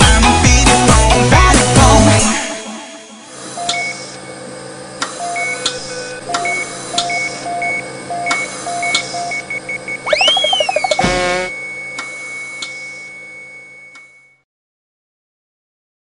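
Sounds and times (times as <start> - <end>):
short electronic beeps: 8.7 - 11.8
rising whistle-like tone: 10.0 - 11.7.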